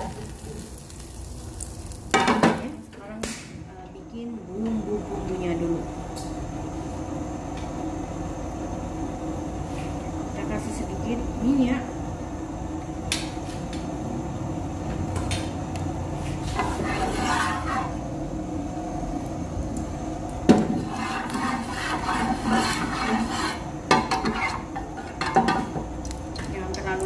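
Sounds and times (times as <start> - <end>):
oil sizzling: 0.0 - 3.5, 12.0 - 27.0
metal spatula scraping a pan: 16.4 - 18.0, 20.6 - 25.6.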